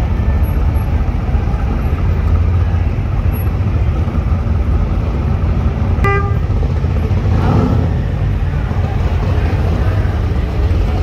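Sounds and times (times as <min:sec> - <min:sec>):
truck engine rumbling: 0:00.0 - 0:11.0
short high beep: 0:06.0 - 0:06.6.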